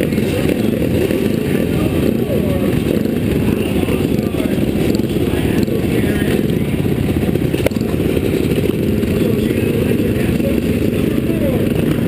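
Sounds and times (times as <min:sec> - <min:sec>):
motorcycle engines idling: 0:00.0 - 0:12.0.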